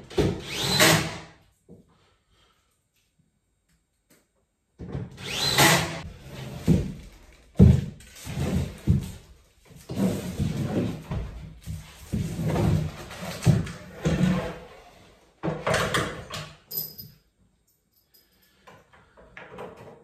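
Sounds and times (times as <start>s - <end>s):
panels knocking and scraping: 6.0s - 16.4s.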